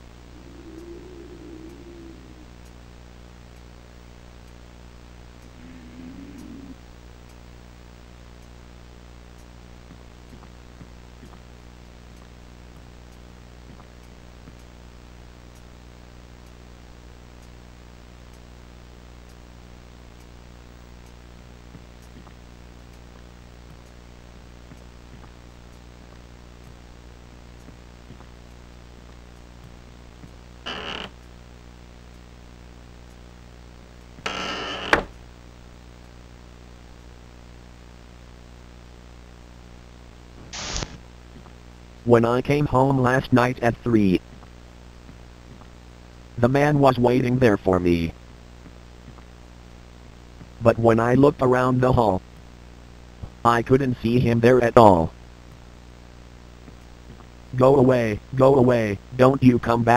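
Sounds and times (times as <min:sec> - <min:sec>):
low hum and hiss: 0:00.0 - 0:59.9
creak ending in click: 0:05.4 - 0:06.8, 0:30.7 - 0:31.2, 0:34.2 - 0:35.1.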